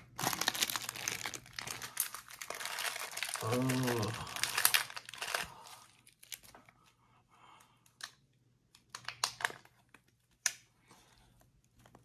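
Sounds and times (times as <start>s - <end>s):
plastic packaging crinkling: 0.0s - 6.8s.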